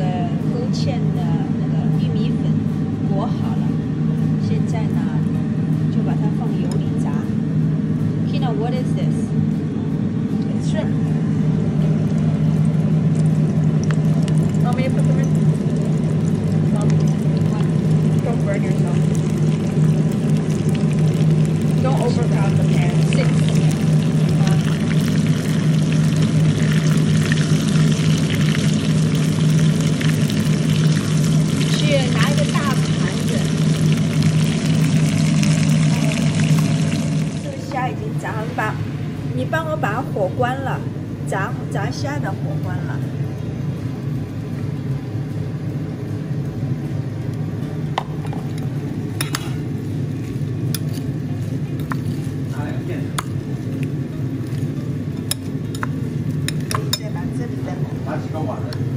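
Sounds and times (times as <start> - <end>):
low hum: 0.0 - 58.9
shrimp deep-frying in oil: 11.7 - 38.3.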